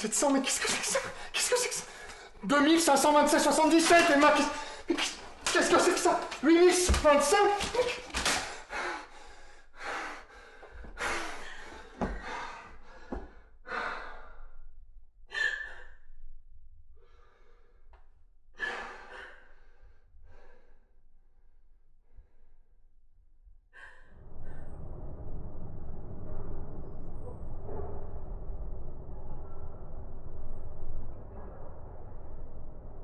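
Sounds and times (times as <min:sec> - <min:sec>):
person breathing hard: 0:08.3 - 0:14.7, 0:17.0 - 0:17.9, 0:18.5 - 0:21.4.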